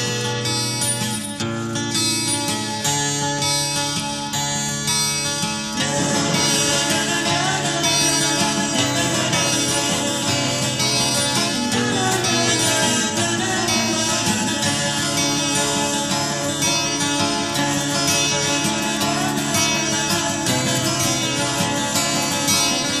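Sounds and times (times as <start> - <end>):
heavy metal band playing: 5.8 - 16.4.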